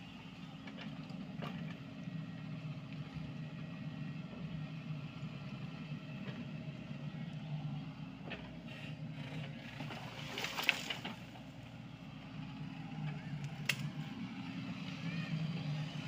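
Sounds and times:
excavator diesel engine running: 0.0s - 16.0s
bucket clattering and scraping soil: 9.8s - 11.3s.

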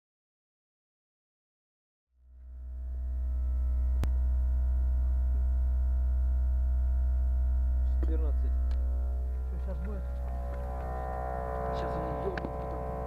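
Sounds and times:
air compressor humming: 2.8s - 13.0s.

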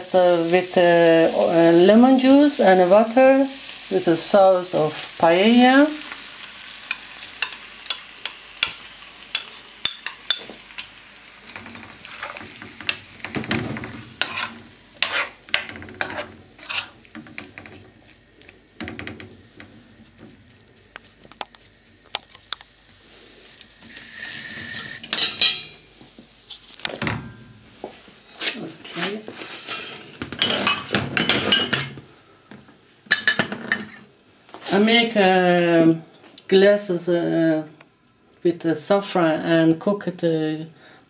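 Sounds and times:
food sizzling: 0.0s - 37.6s
spoon scraping frying pan: 11.5s - 18.2s, 28.3s - 31.9s
burst of hiss: 23.0s - 25.1s.

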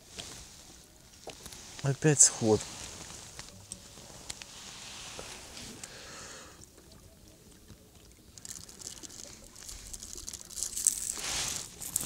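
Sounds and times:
water trickling and splashing: 0.0s - 12.0s.

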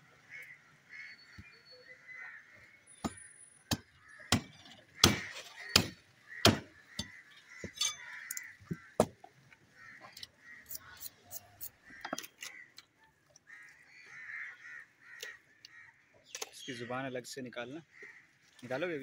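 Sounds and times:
cleaver chopping through bone: 3.1s - 7.2s.

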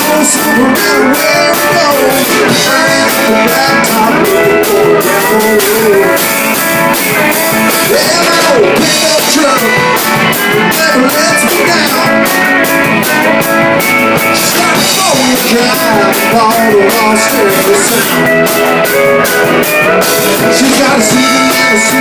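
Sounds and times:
live country band playing: 0.0s - 22.0s
pedal steel guitar sliding notes: 0.0s - 22.0s
twangy electric guitar: 0.0s - 22.0s.

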